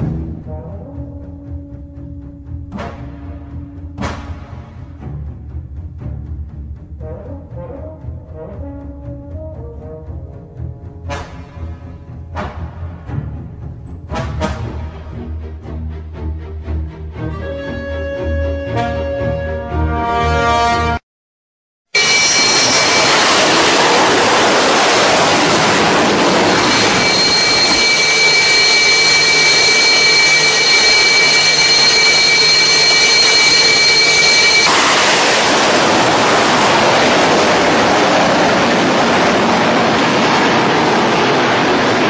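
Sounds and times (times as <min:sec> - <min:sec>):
high engine whine: 0:22.0 - 0:42.0
jet engine roaring: 0:22.0 - 0:42.0.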